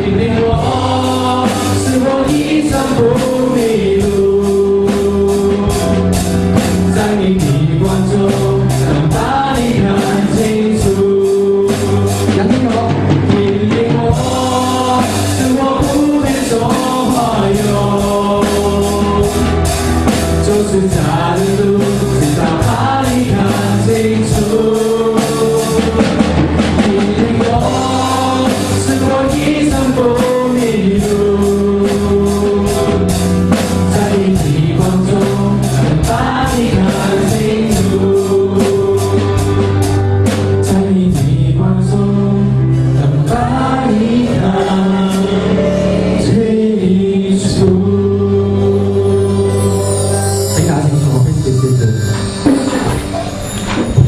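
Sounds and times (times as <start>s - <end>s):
people singing worship song: 0.0s - 50.7s
instrumental accompaniment with beat: 0.0s - 54.0s.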